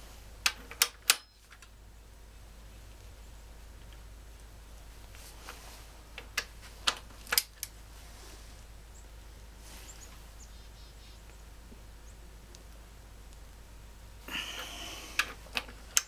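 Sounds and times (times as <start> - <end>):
metal socket clinking on bolt: 0.5 - 1.4.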